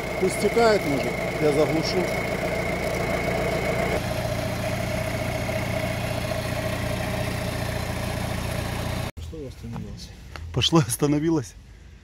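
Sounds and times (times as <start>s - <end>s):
engine idling: 0.0s - 9.1s.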